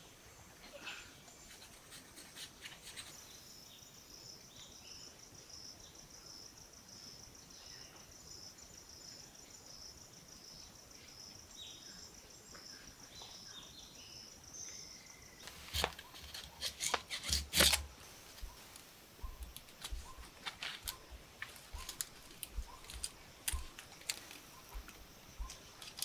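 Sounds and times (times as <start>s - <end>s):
insects chirping chorus: 0.0s - 26.0s
bird chirps: 18.4s - 25.8s.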